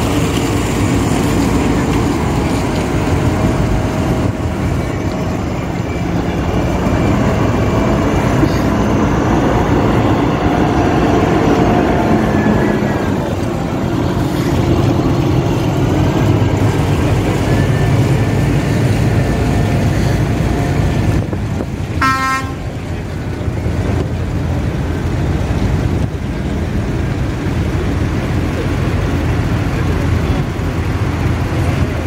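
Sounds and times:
vehicle engines rumbling: 0:00.0 - 0:32.0
vehicle horn toot: 0:22.0 - 0:22.6.

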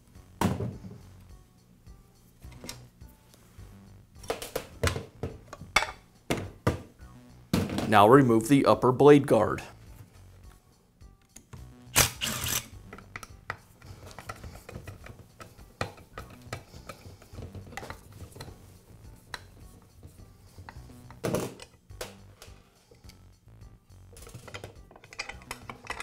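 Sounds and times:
screwdriver clicks and scrapes: 0:12.0 - 0:13.4, 0:14.0 - 0:18.5, 0:24.4 - 0:26.0
metallic clatter: 0:24.2 - 0:26.0.

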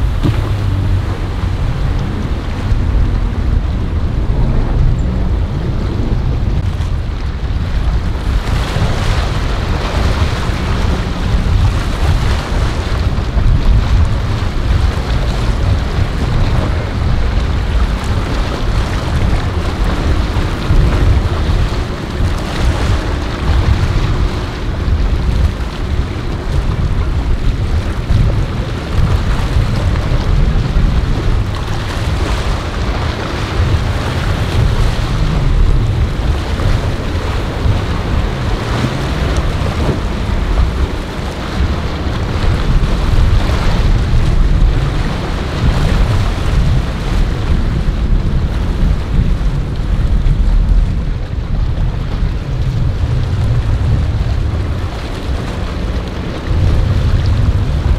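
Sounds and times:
boat rushing through water: 0:00.0 - 0:57.9
faint engine drone: 0:00.0 - 0:57.9
waves breaking: 0:00.0 - 0:57.9
wind rumbling on microphone: 0:00.0 - 0:57.9.

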